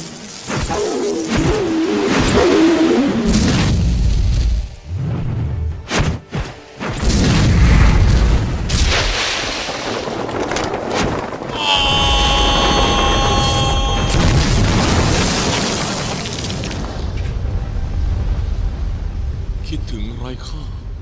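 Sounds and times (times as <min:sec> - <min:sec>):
rushing boom with deep rumble: 0:14.1 - 0:16.2.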